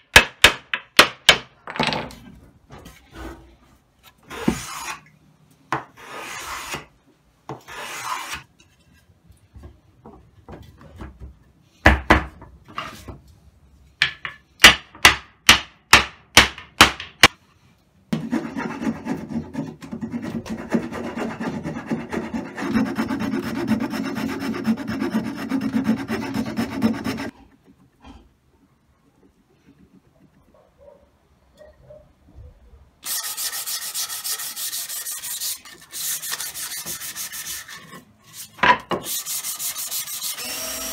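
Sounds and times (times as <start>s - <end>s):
sharp wooden knocks: 14.0s - 17.4s
hand plane strokes on wood: 18.2s - 27.3s
tool rasping on wood: 18.2s - 27.4s.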